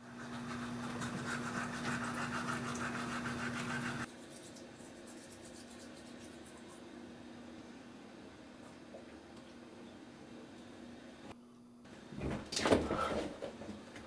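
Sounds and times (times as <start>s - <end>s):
toothbrush scrubbing teeth: 0.0s - 6.8s.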